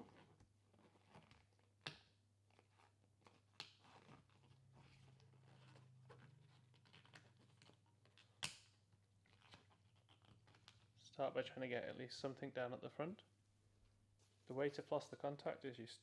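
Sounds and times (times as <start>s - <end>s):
rubbing and stretching latex: 0.0s - 11.0s.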